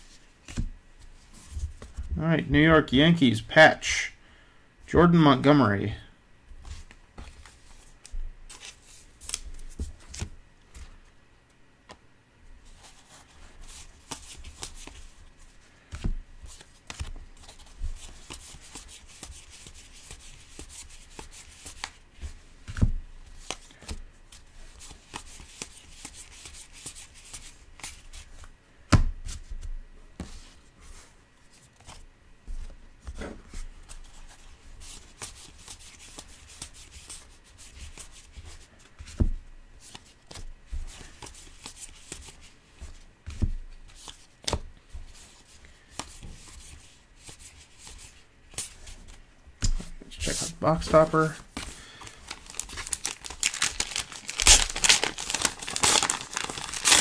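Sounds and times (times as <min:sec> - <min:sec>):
trading cards rustling and clicking: 0:06.7 - 0:10.9, 0:50.2 - 0:57.0.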